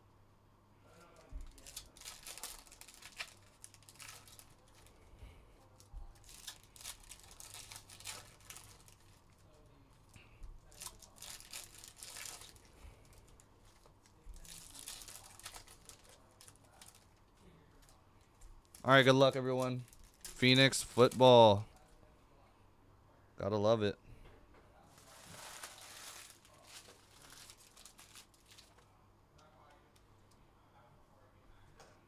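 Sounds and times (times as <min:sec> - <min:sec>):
card pack wrappers tearing: 0:01.4 - 0:04.9, 0:06.1 - 0:09.2, 0:10.7 - 0:12.7, 0:14.4 - 0:17.1, 0:25.0 - 0:28.8.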